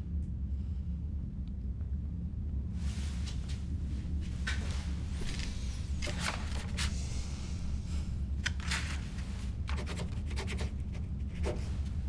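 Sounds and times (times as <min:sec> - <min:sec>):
low room hum: 0:00.0 - 0:12.0
paper handling: 0:05.3 - 0:07.0, 0:08.4 - 0:10.3
pen scratching on paper: 0:09.7 - 0:11.7.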